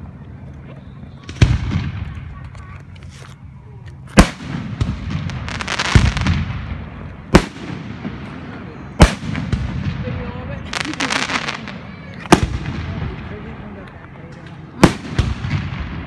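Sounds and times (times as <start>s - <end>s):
firework crackling: 1.0s - 16.0s
firework bangs: 1.2s - 2.8s, 4.1s - 13.8s, 14.5s - 16.0s.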